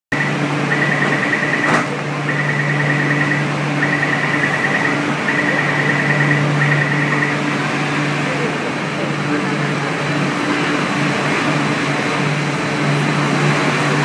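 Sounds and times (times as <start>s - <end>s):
high fluttering warning beep: 0.1s - 7.5s.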